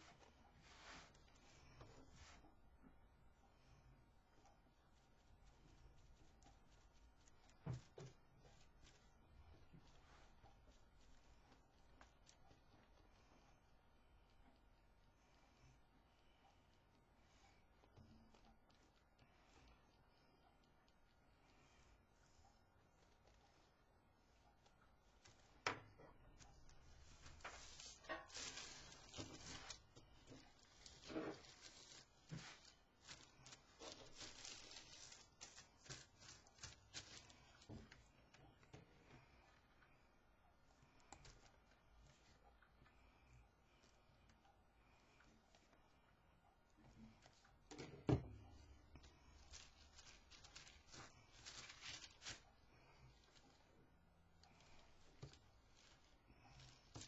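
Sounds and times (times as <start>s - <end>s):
tissue paper rustling and tearing: 26.4s - 37.7s, 49.0s - 52.5s, 54.8s - 57.0s.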